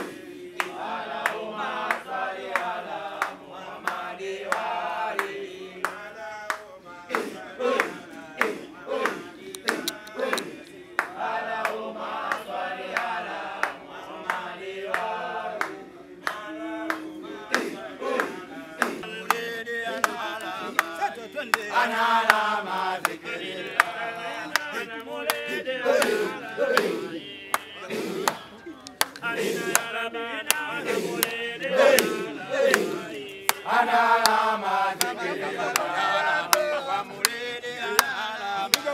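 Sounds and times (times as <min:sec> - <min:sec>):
men chanting together: 0:00.0 - 0:38.9
sharp clicks: 0:09.5 - 0:10.5.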